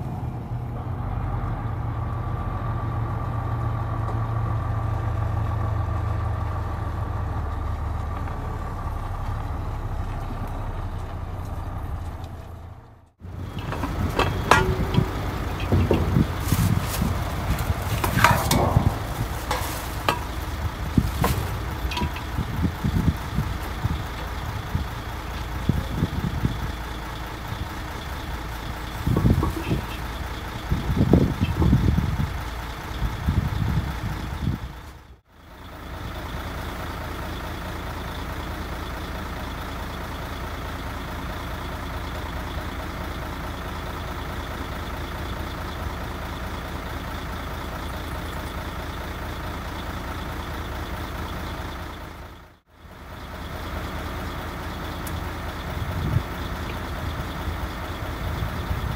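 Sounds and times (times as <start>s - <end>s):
diesel truck engine idling: 0.0s - 58.9s
cooking gear knocking: 13.5s - 23.3s
plastic bag rustling: 16.2s - 18.2s, 19.0s - 21.6s.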